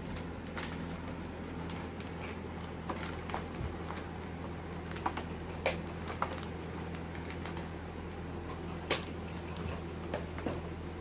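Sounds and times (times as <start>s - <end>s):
steady low hum: 0.0s - 11.0s
small objects tapping and clicking: 4.7s - 7.7s.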